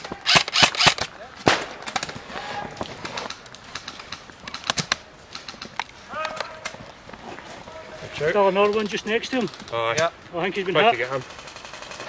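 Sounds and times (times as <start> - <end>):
airsoft rifle shots: 0.2 - 2.1.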